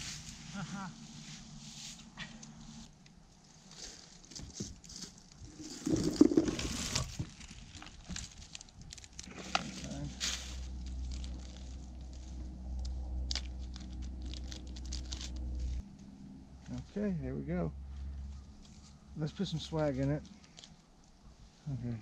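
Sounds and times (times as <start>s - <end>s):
steady low hum: 0.0s - 3.5s, 8.2s - 22.0s
plastic rustling and crinkling: 3.5s - 12.3s, 13.3s - 15.8s.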